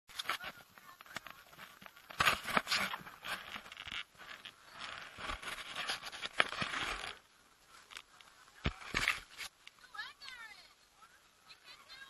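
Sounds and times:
camera handling scraping and rustling: 0:00.1 - 0:07.2, 0:07.8 - 0:09.7.

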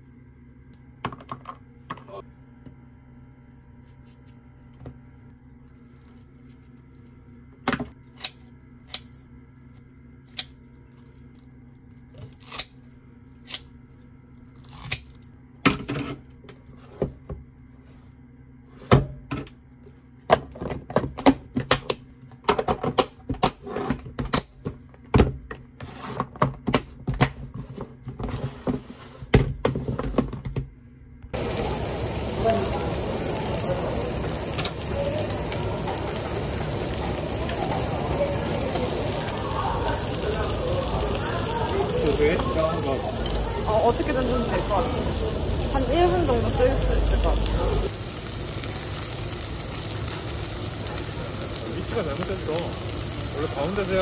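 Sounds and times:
steady low hum: 0:30.7 - 0:53.8.

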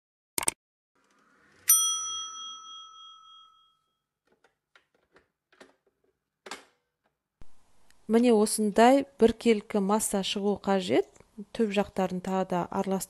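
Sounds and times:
bright metallic ding: 0:01.7 - 0:03.8.

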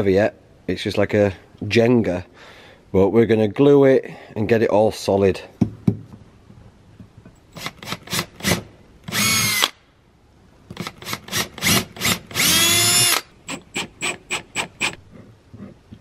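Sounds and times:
cordless drill motor: 0:07.6 - 0:09.7, 0:10.8 - 0:15.0.

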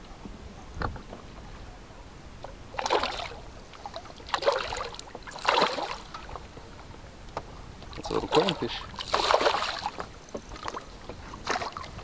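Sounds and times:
fish splashing at water surface: 0:02.8 - 0:06.4, 0:08.1 - 0:12.0.

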